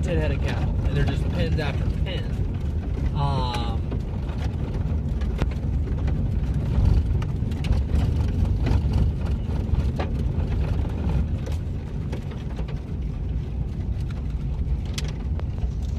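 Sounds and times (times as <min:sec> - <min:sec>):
car engine: 0:00.0 - 0:15.9
tyre and road noise: 0:00.0 - 0:15.9.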